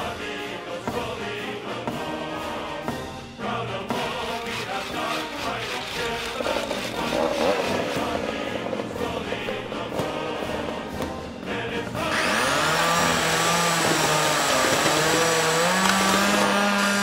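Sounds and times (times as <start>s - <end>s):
background music: 0.0s - 17.0s
angle grinder on metal: 4.3s - 8.1s, 12.0s - 17.0s.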